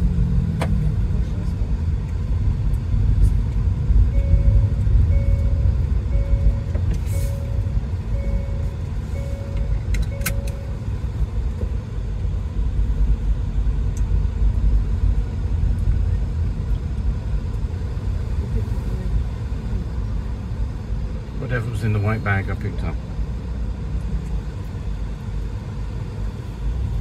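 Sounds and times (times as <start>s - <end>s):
electronic beep: 4.1s - 10.8s.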